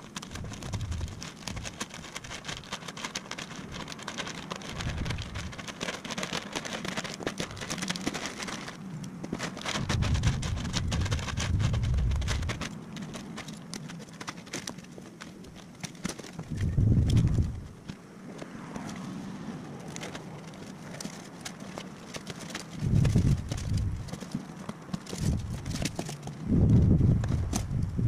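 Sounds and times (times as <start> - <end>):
plastic wrap crinkling: 0.0 - 17.9.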